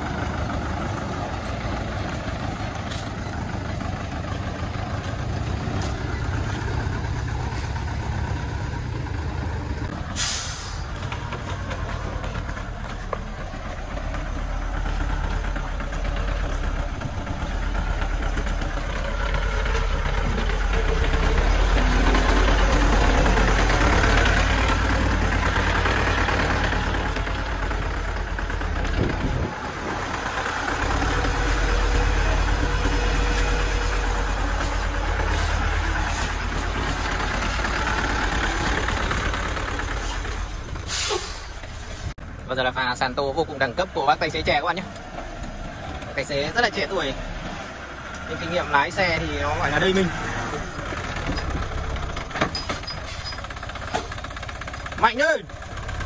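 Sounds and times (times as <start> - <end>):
dump truck diesel engines: 0.0 - 56.0
short hiss of air: 10.2 - 10.9, 40.9 - 42.0.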